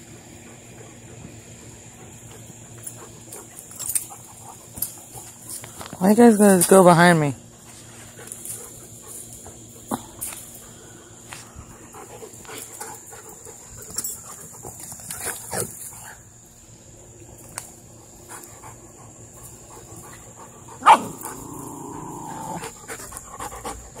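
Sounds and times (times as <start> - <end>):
dog barking: 20.8 - 21.3.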